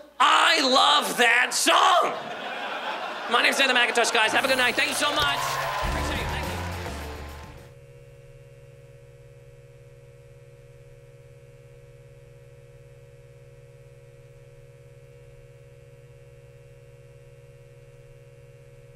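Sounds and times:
low electrical hum: 0:07.7 - 0:18.9.

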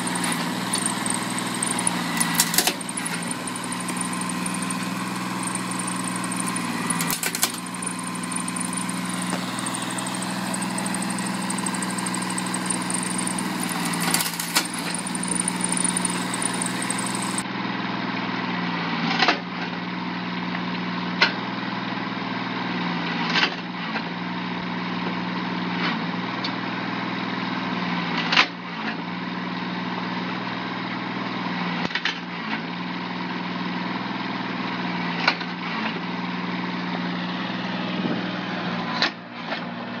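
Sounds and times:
tractor engine running: 0:00.0 - 0:17.4.

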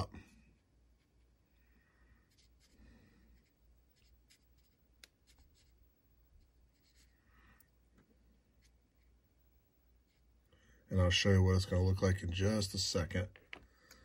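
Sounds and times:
paintbrush dabbing plastic: 0:02.2 - 0:10.5.

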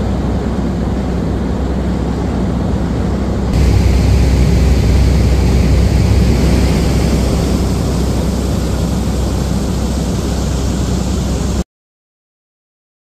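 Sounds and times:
fire engines pumping: 0:03.5 - 0:11.6.

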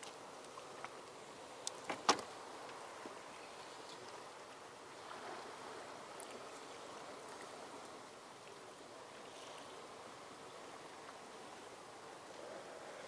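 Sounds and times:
faint ticks: 0:00.0 - 0:02.0
waves lapping against boat hull: 0:00.0 - 0:11.7.

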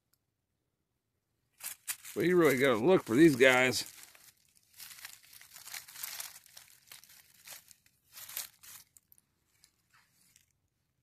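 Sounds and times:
dry leaves rustling and crackling: 0:01.6 - 0:10.5.

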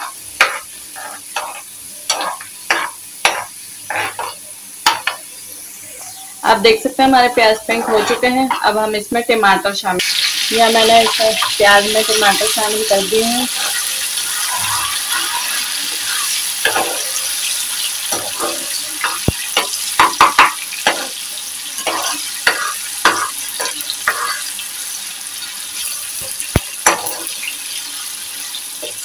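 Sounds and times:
metal spoon scraping a pan: 0:00.0 - 0:05.3, 0:07.2 - 0:08.9, 0:10.0 - 0:29.0
onion and tomato sizzling: 0:00.0 - 0:29.0.

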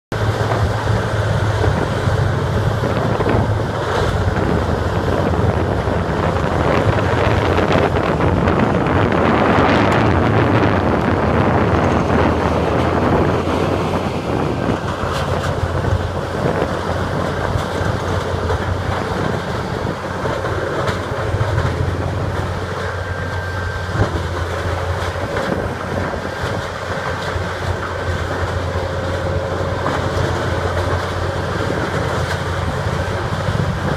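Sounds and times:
grinder engine droning: 0:00.1 - 0:33.9.

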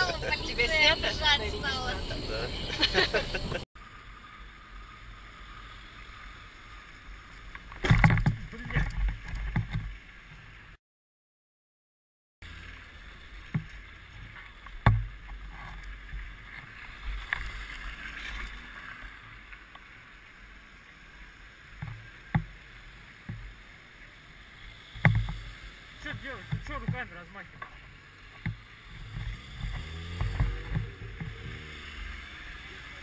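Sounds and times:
wind and road rumble: 0:00.0 - 0:10.8, 0:12.4 - 0:33.0
knocks and thumps: 0:28.4 - 0:31.7.

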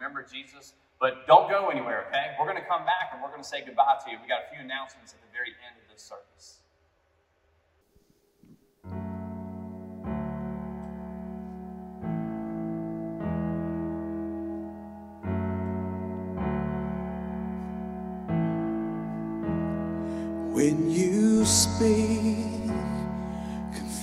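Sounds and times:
sustained piano chords: 0:08.8 - 0:24.0.

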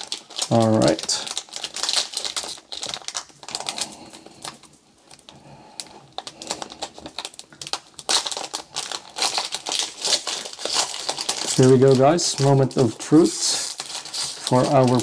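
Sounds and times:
foil wrapper crinkling: 0:00.0 - 0:15.0.

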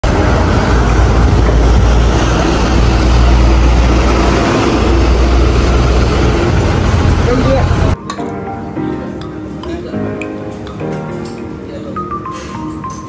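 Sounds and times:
street traffic rumble: 0:00.0 - 0:08.0.

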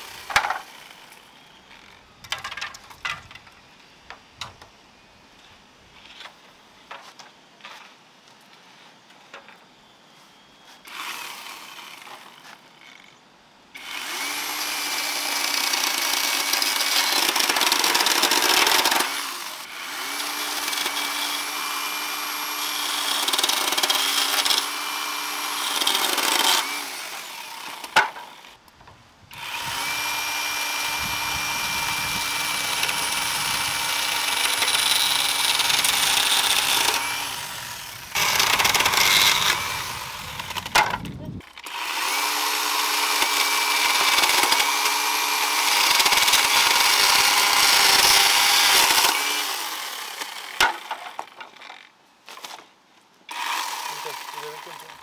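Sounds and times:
chainsaw cutting bamboo: 0:00.0 - 0:03.4, 0:10.8 - 0:28.6, 0:29.3 - 0:55.0.

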